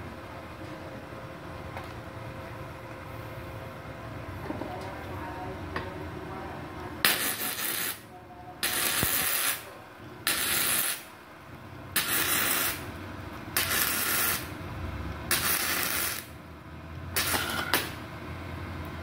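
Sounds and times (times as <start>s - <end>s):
welding arc crackling: 7.0s - 11.2s, 11.9s - 16.5s, 17.1s - 18.1s.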